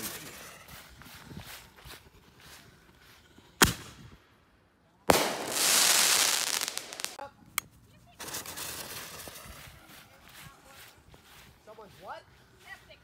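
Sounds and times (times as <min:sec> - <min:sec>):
firework bang: 0:05.1 - 0:07.2
firework burst with rushing hiss: 0:05.1 - 0:07.2
firework crackling: 0:05.1 - 0:07.3, 0:08.2 - 0:09.7.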